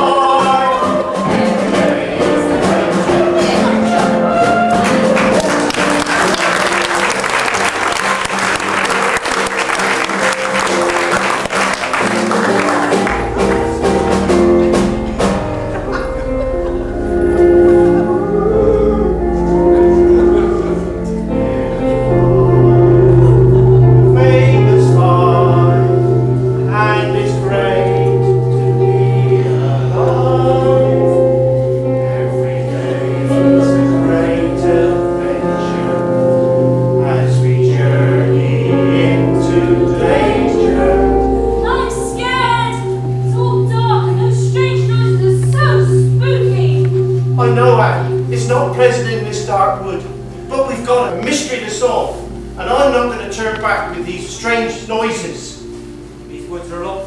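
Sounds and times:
people singing: 0.0 - 7.4, 15.8 - 54.1
live band music: 0.0 - 57.0
audience applause: 4.7 - 14.4
deep bass drone: 5.4 - 57.0.

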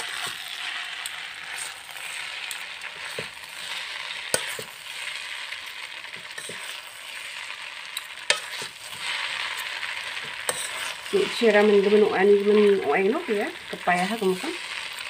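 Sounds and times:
noodles hissing while stirred: 0.0 - 15.0.

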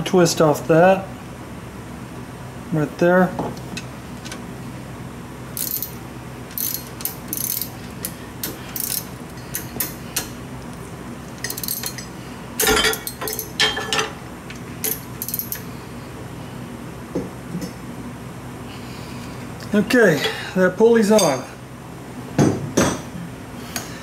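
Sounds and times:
ratchet wrench clicking: 5.6 - 10.3, 11.4 - 12.0, 14.8 - 15.7.

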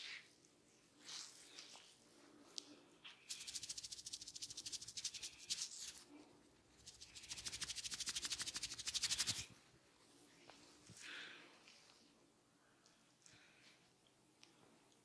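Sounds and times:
fingertips rustling through hair: 1.0 - 6.1, 6.8 - 9.6.

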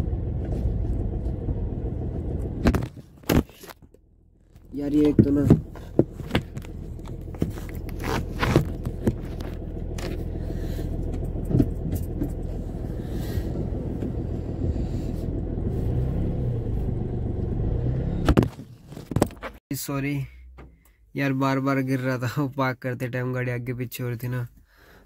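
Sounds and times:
car engine running: 0.0 - 19.6.

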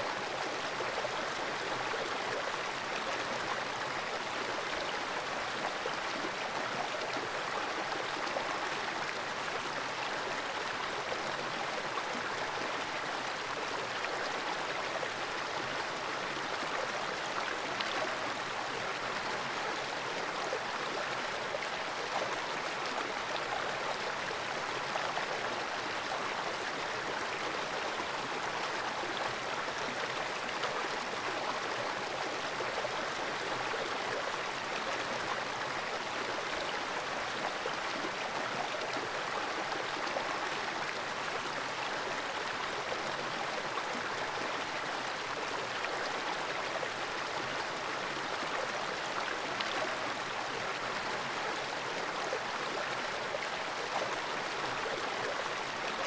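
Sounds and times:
creek water rushing over rocks: 0.0 - 56.0.

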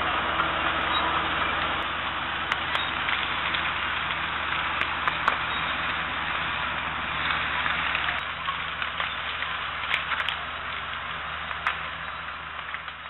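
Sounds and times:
dense crackling hiss: 0.0 - 13.0
vehicle engine running: 0.0 - 13.0
faint clicks: 7.2 - 13.0.

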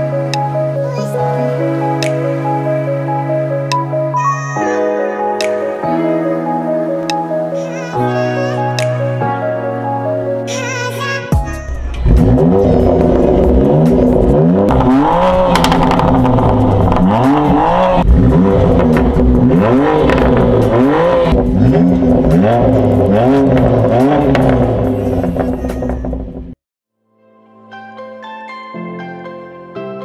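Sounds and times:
car engine revving: 11.7 - 26.6.

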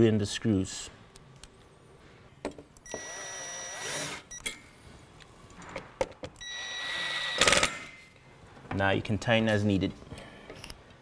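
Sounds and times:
cordless drill driving screw: 2.9 - 4.2, 6.4 - 7.7.

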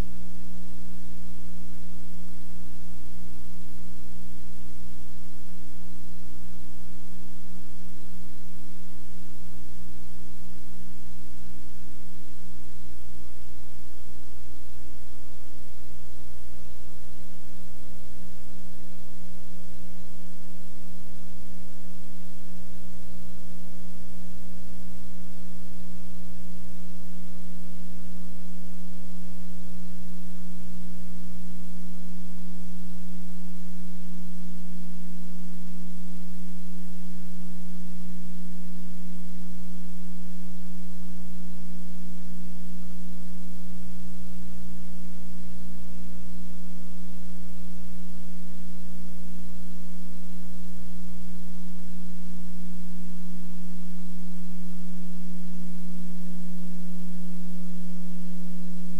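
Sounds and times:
steady electrical hum: 0.0 - 58.9.

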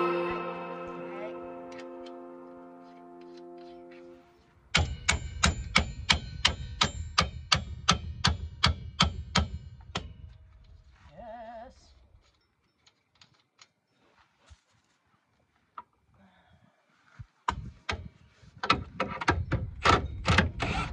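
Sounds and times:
short wavering tone: 0.0 - 4.3
hammer striking metal bolt: 4.7 - 10.1.

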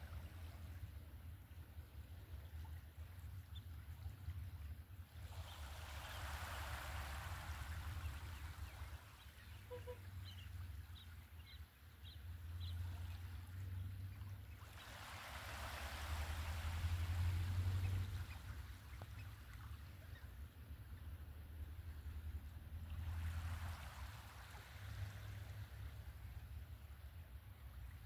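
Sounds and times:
waves washing onto sand: 5.0 - 11.3, 12.8 - 20.2, 22.8 - 26.7
bird calls: 7.8 - 13.4, 17.6 - 20.4.

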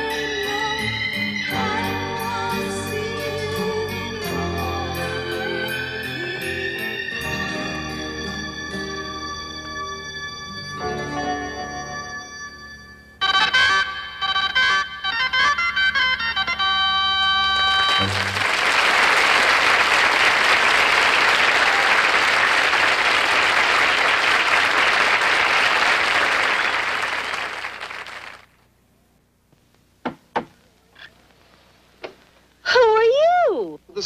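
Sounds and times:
audience applause: 17.6 - 28.6.

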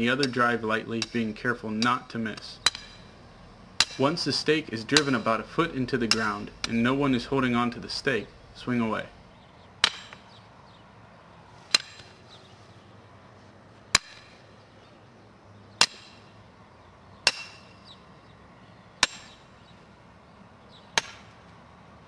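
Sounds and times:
sledgehammer striking steel stake: 0.0 - 3.2, 3.8 - 7.2, 9.8 - 10.4, 11.7 - 12.2, 13.9 - 14.5, 15.8 - 16.3, 17.2 - 17.9, 19.0 - 19.5, 20.9 - 21.4.

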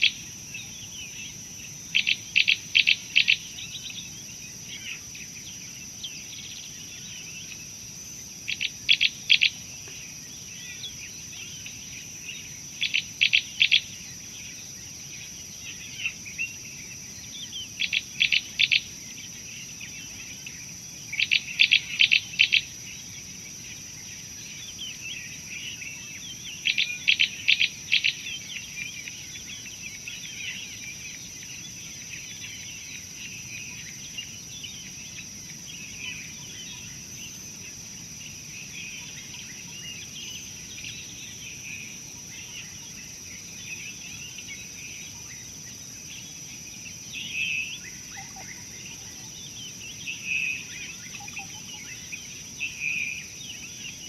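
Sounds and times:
high insect drone: 0.0 - 54.0
small birds calling: 0.0 - 54.0.

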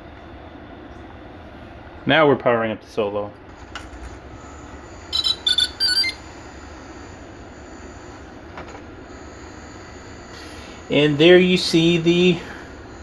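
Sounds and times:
steady low hum: 0.0 - 13.0
short electronic beeps: 4.4 - 6.3.

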